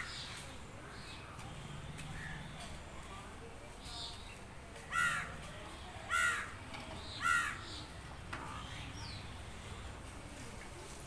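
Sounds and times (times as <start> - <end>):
harsh bird calls: 6.1 - 9.7.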